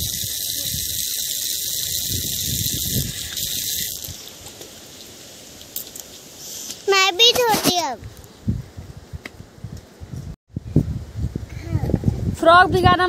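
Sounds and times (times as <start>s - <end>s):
running water hissing: 0.0s - 6.9s.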